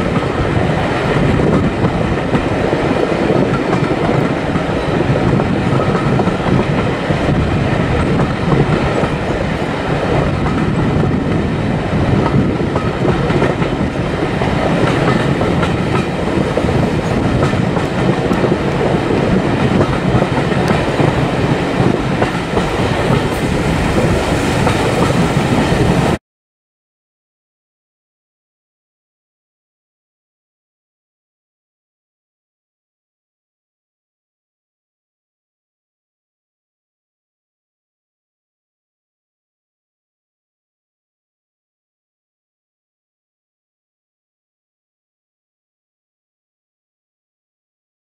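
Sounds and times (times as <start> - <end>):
train rumbling along track: 0.0 - 26.2.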